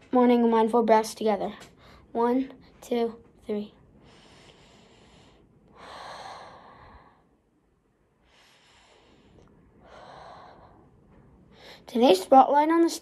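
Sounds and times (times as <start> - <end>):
child breathing deeply: 4.0 - 7.4, 8.2 - 11.9.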